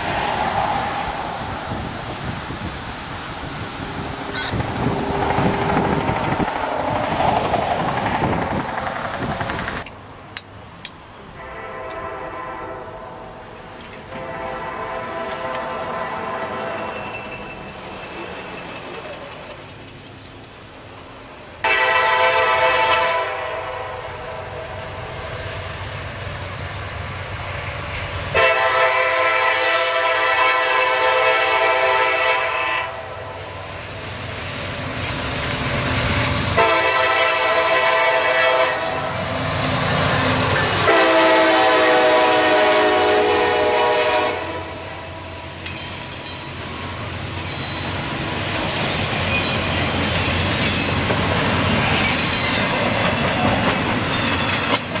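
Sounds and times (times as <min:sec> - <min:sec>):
rumble of rolling freight cars: 0:00.0 - 0:55.0
locomotive air horn blasts: 0:11.4 - 0:13.1, 0:14.1 - 0:17.1, 0:21.6 - 0:24.0, 0:28.3 - 0:33.1, 0:36.6 - 0:39.1, 0:40.8 - 0:45.2.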